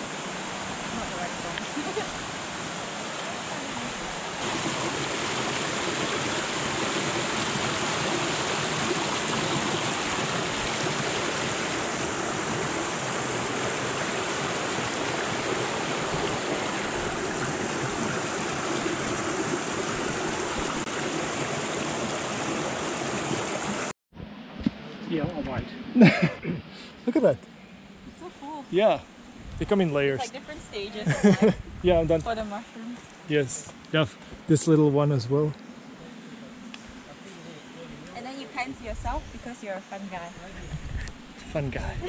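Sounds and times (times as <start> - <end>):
water rushing over rocks: 0.0 - 23.9.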